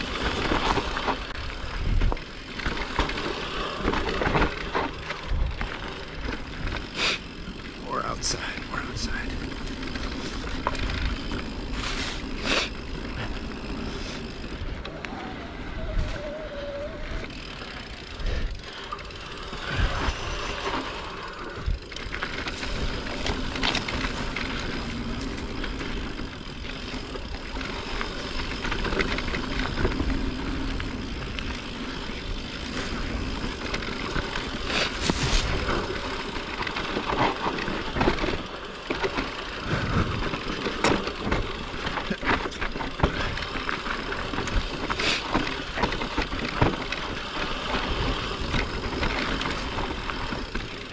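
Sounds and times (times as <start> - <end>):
rushing noise of bike ride: 0.0 - 50.9
bike knocks and rattles: 17.2 - 50.9.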